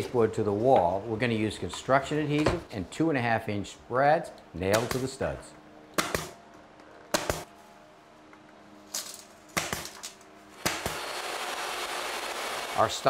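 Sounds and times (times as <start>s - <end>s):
nail gun shots: 4.7s - 5.2s, 6.0s - 6.4s, 7.1s - 7.5s, 9.6s - 10.0s, 10.6s - 11.2s.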